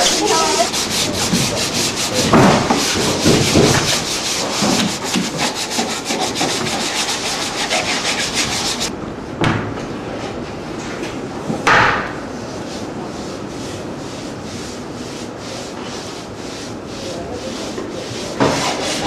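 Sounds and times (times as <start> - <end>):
sanding block rasping on wood: 0.0 - 8.9, 12.7 - 19.0
knock: 2.2 - 4.0.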